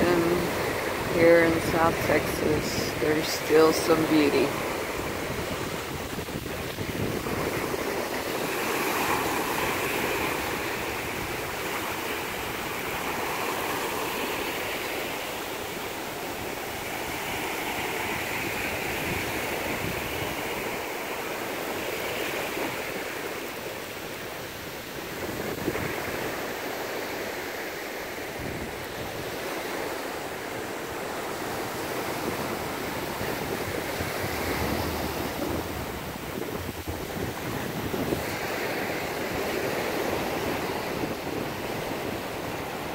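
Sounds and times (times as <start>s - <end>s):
wind rumble on microphone: 0.0s - 11.7s, 17.9s - 20.7s, 24.9s - 26.5s, 28.3s - 29.6s, 31.4s - 42.9s
ocean surf breaking on beach: 0.0s - 42.9s.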